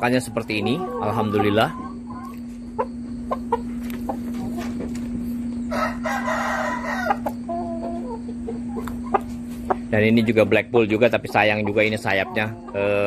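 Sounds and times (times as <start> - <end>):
chicken clucking: 0.0 - 13.0
rooster crowing: 5.6 - 7.8.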